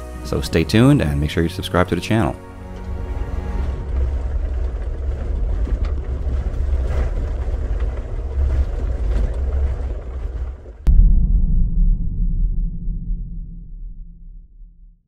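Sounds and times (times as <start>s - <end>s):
engine and tyre rumble: 2.7s - 10.9s
deep rumbling boom: 10.8s - 15.0s.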